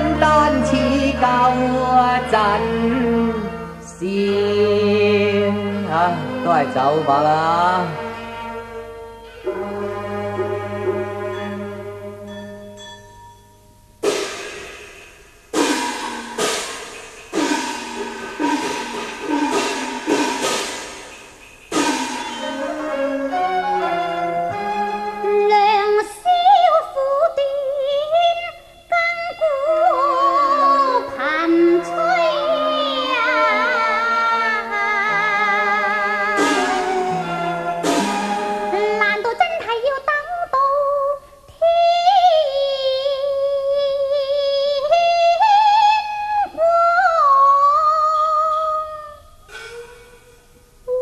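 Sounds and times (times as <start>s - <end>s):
opera singing voice: 0.0s - 8.6s, 22.4s - 50.1s
held instrumental notes: 0.0s - 27.2s, 29.5s - 40.1s.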